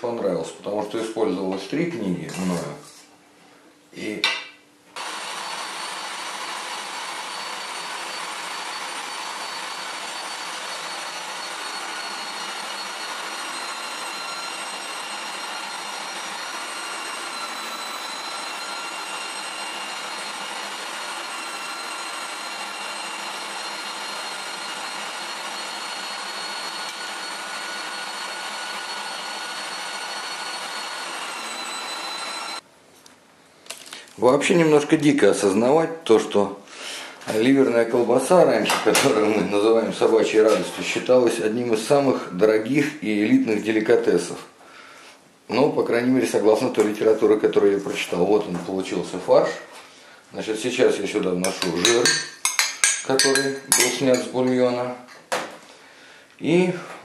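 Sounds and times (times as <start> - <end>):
electric meat grinder whine: 5.0 - 32.6.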